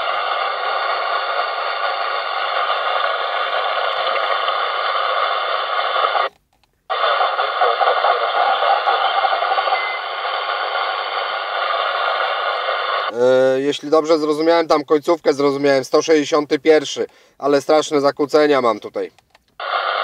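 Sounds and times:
faint radio signal: 0:00.0 - 0:06.3, 0:06.9 - 0:15.5, 0:19.6 - 0:20.0
radio static hiss: 0:00.0 - 0:06.3, 0:06.9 - 0:18.6, 0:19.6 - 0:20.0.

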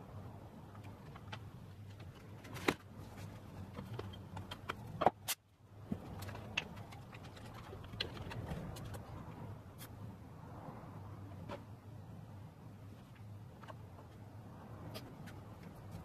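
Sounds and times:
faint steady hum: 0:00.0 - 0:16.0
wooden pieces clicking and knocking: 0:00.7 - 0:09.3.

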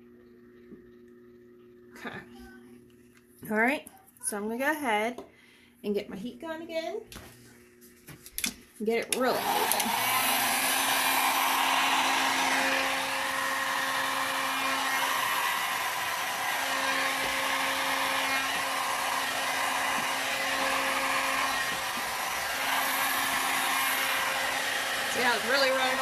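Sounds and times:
faint motor hum: 0:00.0 - 0:26.0
heat gun air rushing: 0:09.2 - 0:26.0.

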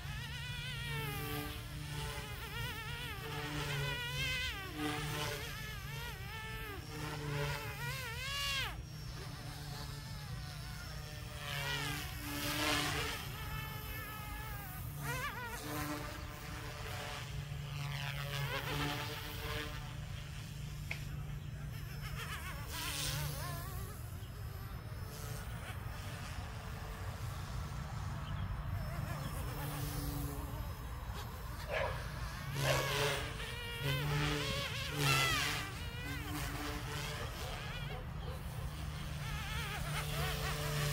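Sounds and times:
rc helicopter rotor whine: 0:00.0 - 0:40.9
rotor whoosh: 0:24.2 - 0:40.9.

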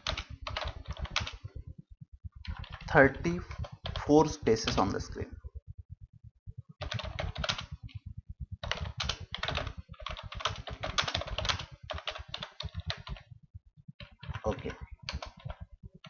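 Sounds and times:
computer keyboard typing: 0:00.0 - 0:01.6, 0:02.4 - 0:05.0, 0:06.8 - 0:08.0, 0:08.6 - 0:13.3, 0:14.0 - 0:16.0.

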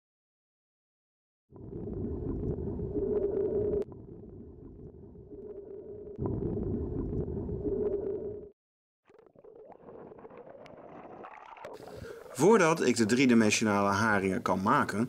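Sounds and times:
muffled underwater rushing water: 0:01.6 - 0:08.5, 0:09.1 - 0:14.0.

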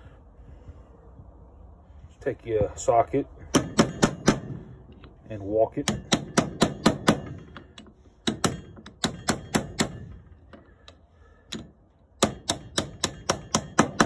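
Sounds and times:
hammer tapping on metal: 0:05.8 - 0:10.0, 0:11.5 - 0:14.0.

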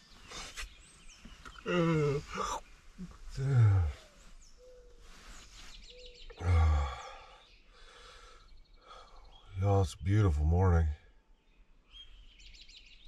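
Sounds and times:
faint bird chirps: 0:00.0 - 0:13.0
man's wordless vocal sounds: 0:01.6 - 0:04.1, 0:06.3 - 0:07.4, 0:09.6 - 0:11.0.

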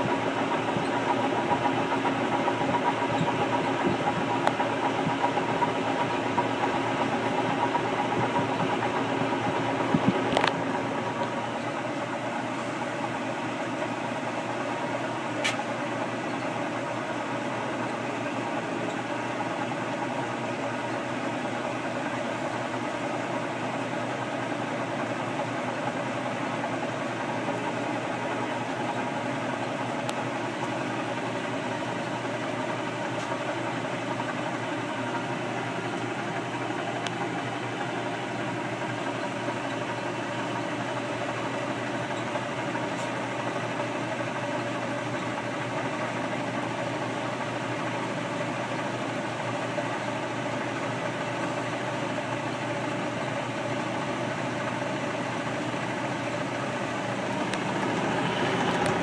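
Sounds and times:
washing machine motor hum and churn: 0:00.0 - 0:59.0
sharp click: 0:15.4 - 0:15.7.

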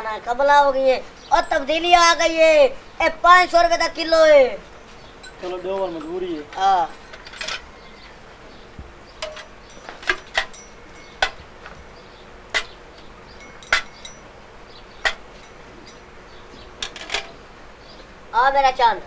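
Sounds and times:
metal mug clinking on milk cans: 0:09.2 - 0:11.4, 0:12.5 - 0:12.8, 0:13.4 - 0:14.3, 0:16.8 - 0:17.4.

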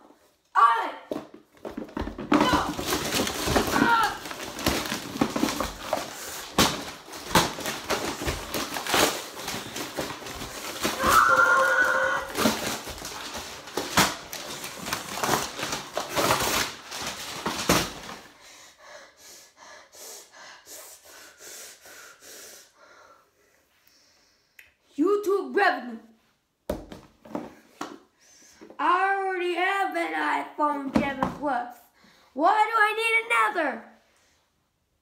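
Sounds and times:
paper and foil tearing: 0:02.6 - 0:18.2
boy crying out: 0:03.6 - 0:04.3, 0:10.9 - 0:12.4.

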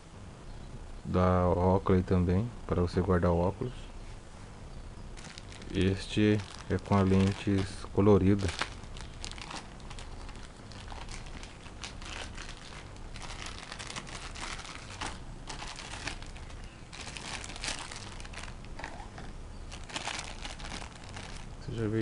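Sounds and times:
plastic bag crinkling: 0:05.2 - 0:22.0.

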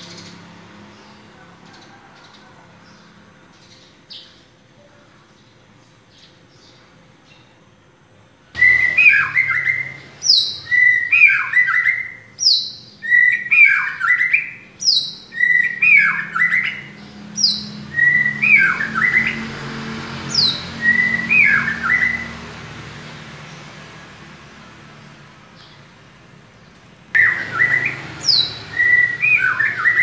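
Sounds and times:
bird singing whistled phrases: 0:08.6 - 0:19.4, 0:20.4 - 0:22.3, 0:27.2 - 0:30.0.

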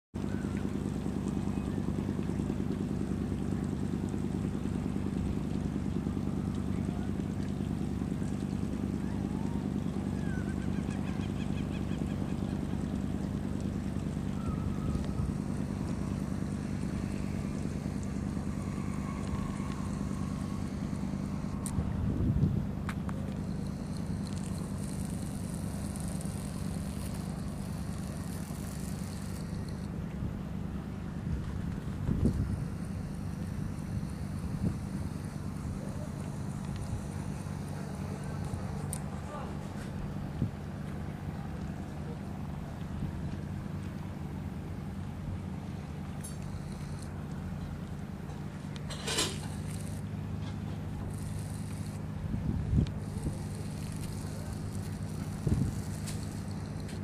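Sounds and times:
boat engine running: 0:00.1 - 0:57.0
wind hiss on microphone: 0:14.3 - 0:30.4, 0:31.2 - 0:39.4, 0:50.8 - 0:57.0.

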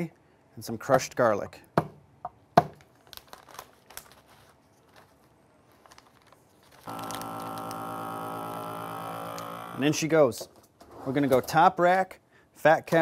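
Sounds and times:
plastic bag rustling: 0:02.8 - 0:08.2
vacuum sealer pump humming: 0:06.8 - 0:10.0.

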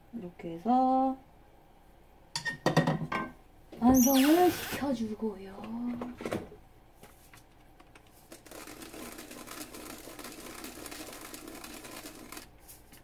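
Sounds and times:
seeds rattling in plastic shaker: 0:08.3 - 0:12.9.

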